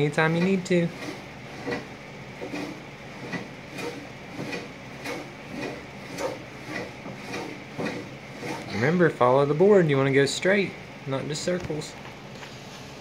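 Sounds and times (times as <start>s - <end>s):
hand plane scraping wood: 0.2s - 9.2s.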